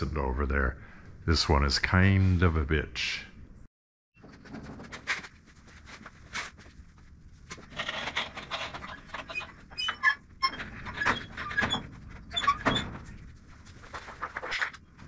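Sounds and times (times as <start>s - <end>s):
winch and cable squeaks: 7.9s - 12.9s.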